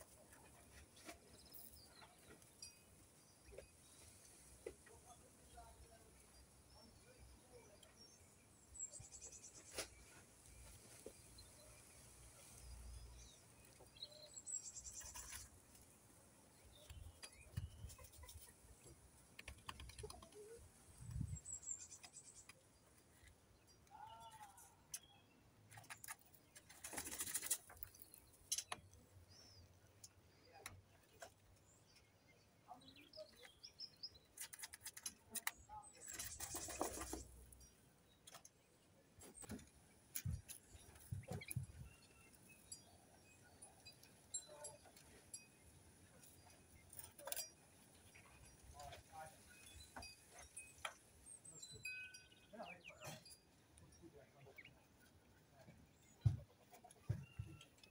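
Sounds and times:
faint bird chirps: 0:40.2 - 0:57.9.

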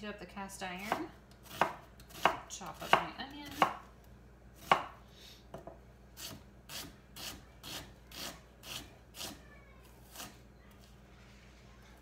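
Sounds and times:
knife slicing onion: 0:00.8 - 0:03.8, 0:04.6 - 0:05.0, 0:06.2 - 0:09.4, 0:10.0 - 0:10.4.

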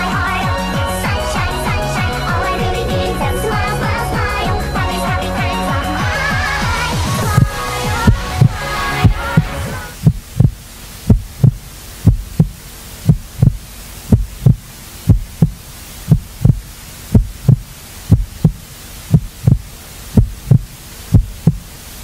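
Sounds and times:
song: 0:00.0 - 0:10.0
faint hiss: 0:00.0 - 0:22.0
heartbeat double thump: 0:07.2 - 0:21.6.

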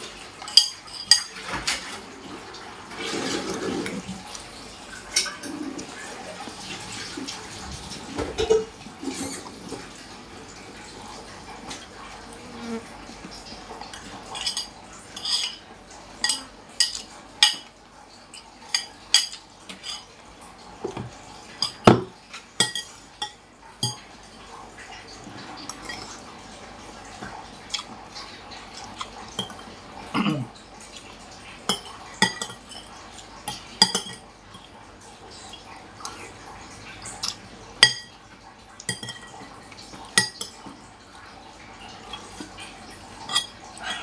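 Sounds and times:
cutlery clinking on ceramic bowl: 0:00.4 - 0:02.0, 0:13.9 - 0:15.6, 0:16.2 - 0:17.7, 0:21.6 - 0:24.0, 0:31.7 - 0:32.9, 0:33.5 - 0:34.7, 0:37.2 - 0:38.1, 0:38.8 - 0:39.4, 0:40.1 - 0:40.6, 0:43.2 - 0:43.6.

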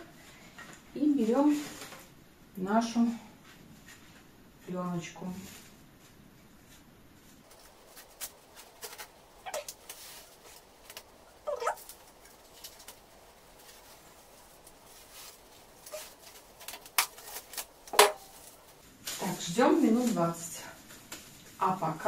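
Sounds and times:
cling film crinkling: 0:07.3 - 0:21.7.

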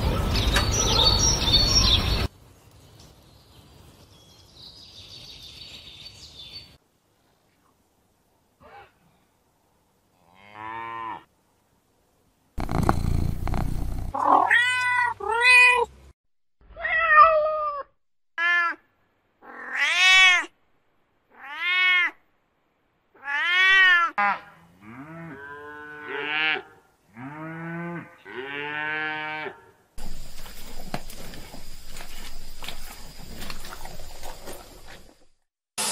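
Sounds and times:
outdoor background noise: 0:00.0 - 0:16.2, 0:16.8 - 0:35.9
cats meowing: 0:14.1 - 0:15.9.

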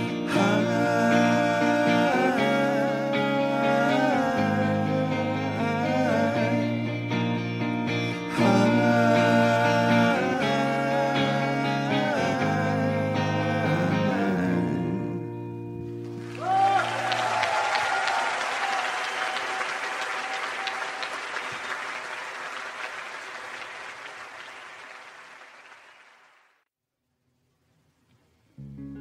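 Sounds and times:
audience applause and cheering: 0:16.1 - 0:26.6.

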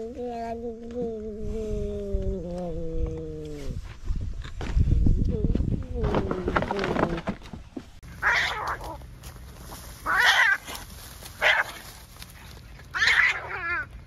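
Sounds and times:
cats yowling: 0:08.2 - 0:09.0, 0:10.0 - 0:10.7, 0:12.9 - 0:14.0.

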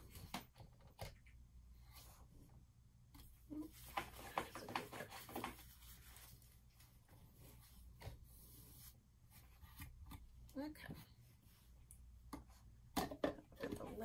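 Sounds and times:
plastic cups tapping and scraping: 0:03.7 - 0:05.9, 0:12.2 - 0:14.0.

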